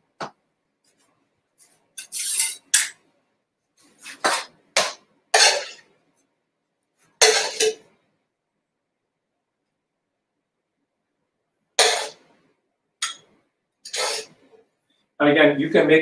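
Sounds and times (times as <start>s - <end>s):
metal spoon scraping a frying pan: 2.0s - 3.0s, 4.0s - 5.9s, 7.2s - 7.9s, 11.8s - 12.3s, 13.0s - 14.6s.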